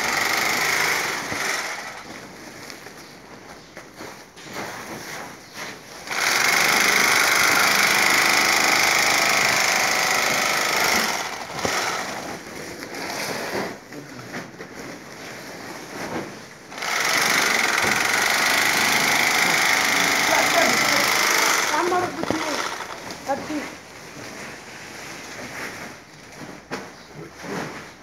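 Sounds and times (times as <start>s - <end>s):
sewing machine running: 0.0s - 2.1s, 6.0s - 13.5s, 16.7s - 23.3s
handling knocks and rustle: 2.1s - 6.0s.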